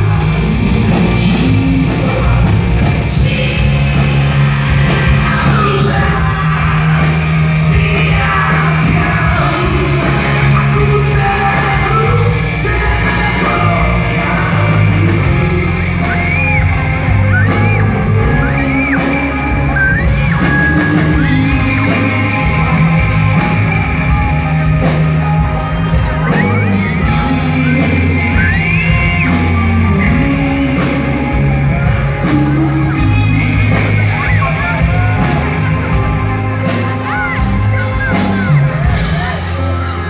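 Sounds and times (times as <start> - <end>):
live rock band playing: 0.0 - 40.0
man singing lead vocal: 0.0 - 40.0
audience shouting and whooping: 8.0 - 40.0.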